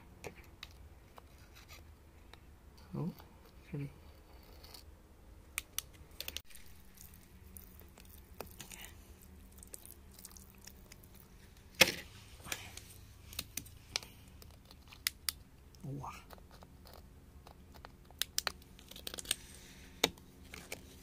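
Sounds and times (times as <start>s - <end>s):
clicks taps and wet scrapes: 5.6s - 11.3s.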